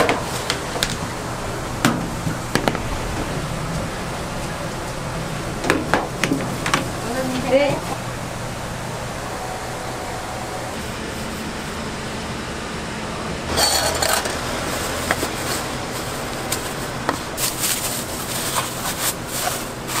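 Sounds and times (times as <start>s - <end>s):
steady low hum: 0.0s - 20.0s
plastic bags rustling and crinkling: 13.8s - 20.0s.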